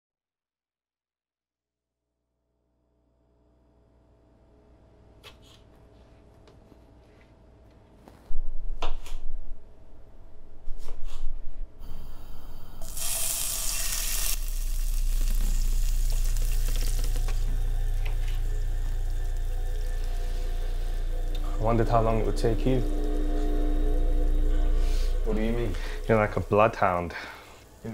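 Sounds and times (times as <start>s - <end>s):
low hum: 11.4s - 27.9s
meat sizzling in a pan: 12.8s - 21.4s.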